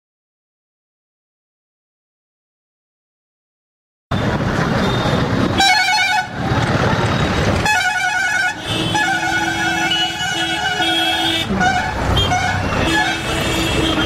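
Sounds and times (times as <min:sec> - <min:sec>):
traffic engine and road noise: 0:04.1 - 0:14.0
vehicle horn blasts: 0:05.6 - 0:06.4, 0:07.6 - 0:14.0.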